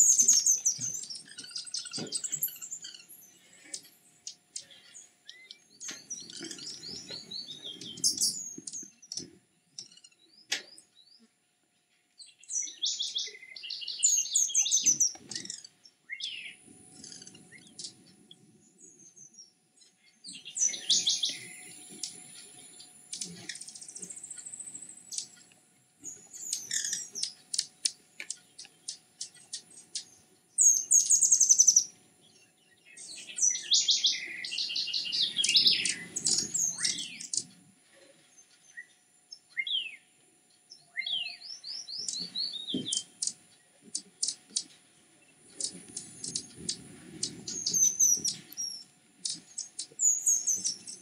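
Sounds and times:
hummingbirds chirping: 0.0s - 11.3s, 12.2s - 37.6s, 38.3s - 51.0s.

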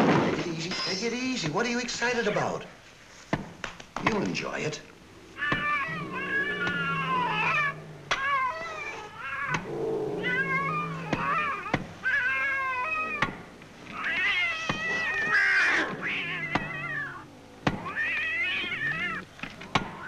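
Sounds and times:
cat meowing: 5.2s - 20.0s.

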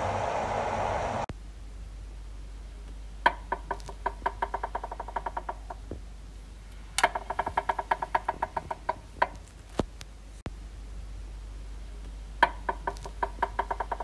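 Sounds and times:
rope swing creaking: 3.3s - 6.0s, 6.6s - 10.4s, 12.4s - 14.0s.

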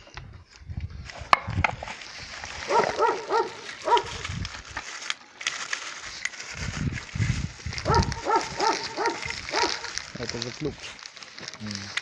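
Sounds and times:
plastic packaging crinkling: 1.1s - 12.0s
animal pitched calls: 7.8s - 10.0s.

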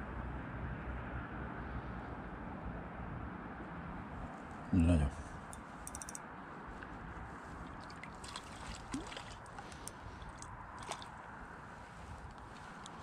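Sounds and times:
small clicks and ticks: 5.5s - 6.2s
river water rushing: 7.5s - 11.3s.

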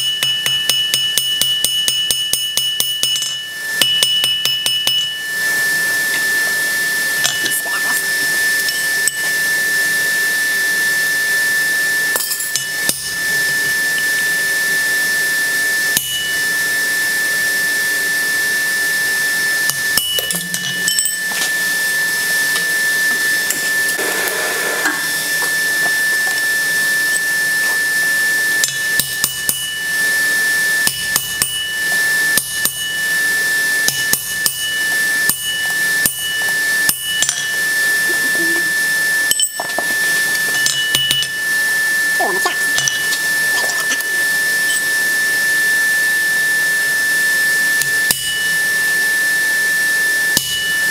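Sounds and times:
hammer striking steel on anvil: 0.0s - 5.3s, 12.1s - 13.2s, 16.0s - 16.4s, 19.7s - 21.6s, 28.6s - 29.8s, 30.8s - 33.0s, 33.8s - 37.6s, 40.5s - 41.4s, 47.8s - 48.5s, 50.3s - 50.9s
thin high whine: 2.8s - 50.9s.

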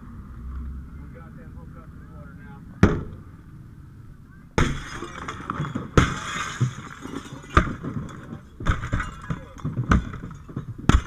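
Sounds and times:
glass shattering and falling: 4.6s - 11.0s.

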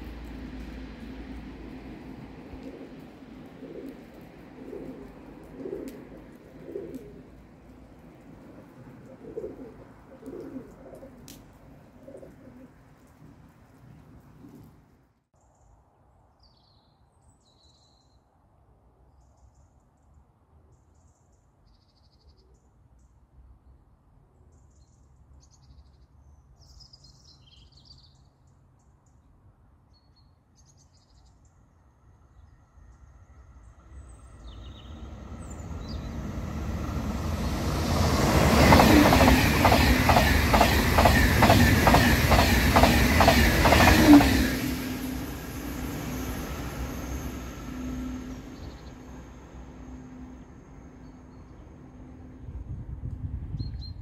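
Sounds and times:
train passing with rushing noise: 0.0s - 14.8s, 32.7s - 53.5s
train wheels clattering: 35.6s - 48.2s.

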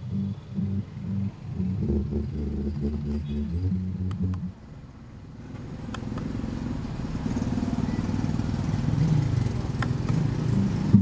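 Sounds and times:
bass-heavy music through woofer: 0.0s - 4.6s, 10.5s - 11.0s.

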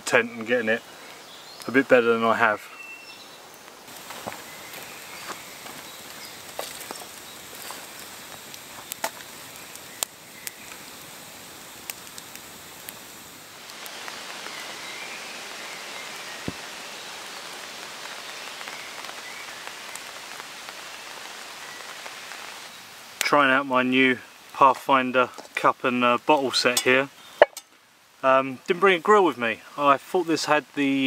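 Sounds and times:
campfire crackling: 0.0s - 31.0s
rain pattering on a tent: 0.0s - 31.0s.

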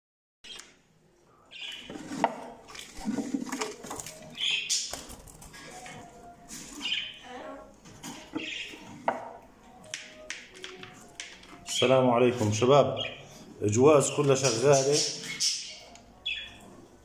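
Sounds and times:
budgerigars chattering and squawking: 4.3s - 5.1s, 6.8s - 7.2s, 8.2s - 8.9s, 12.9s - 13.3s, 14.3s - 16.6s.

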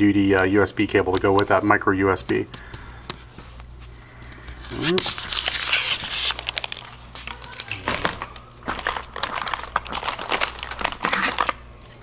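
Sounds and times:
packaging crinkling: 4.4s - 12.0s.

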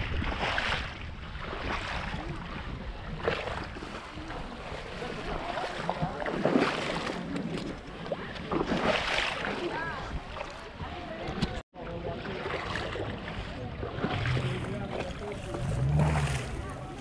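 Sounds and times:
wind rumble on microphone: 0.0s - 8.9s
water sloshing and splashing: 0.0s - 17.0s.

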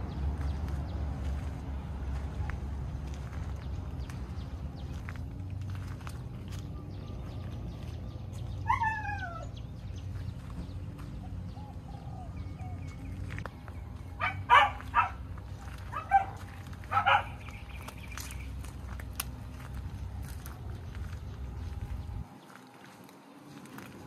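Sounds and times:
small dogs barking: 8.5s - 9.6s, 14.2s - 18.0s
dog yelping: 8.6s - 9.6s, 14.2s - 15.2s, 15.9s - 17.4s.

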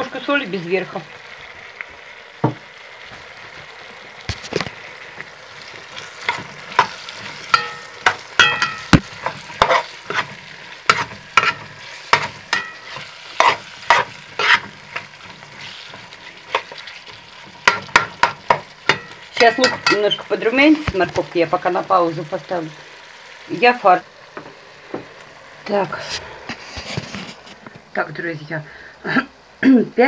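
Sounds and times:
vegetables sizzling in oil: 0.0s - 30.0s
metal spatula scraping a pot: 6.0s - 20.3s.

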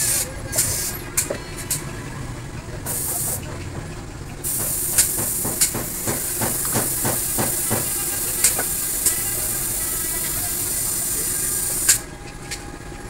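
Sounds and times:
steady high hiss: 4.5s - 12.1s.

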